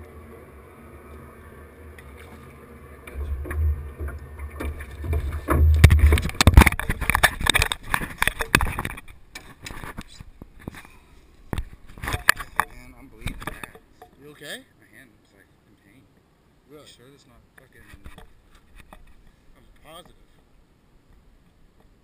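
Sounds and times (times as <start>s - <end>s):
steady low rumble: 0.0s - 8.6s
camera knocks and rattles: 3.1s - 10.8s, 11.5s - 14.2s.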